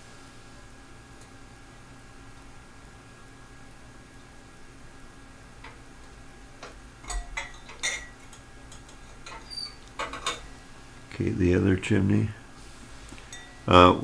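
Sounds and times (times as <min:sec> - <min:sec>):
glass clicks and knocks: 0:07.1 - 0:09.4
brief glassy ring: 0:13.3 - 0:13.7.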